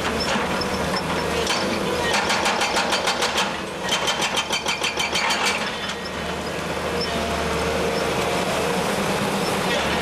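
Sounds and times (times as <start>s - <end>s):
hydraulic breaker hammering rock: 0.0s - 6.1s
excavator engine running: 0.0s - 10.0s.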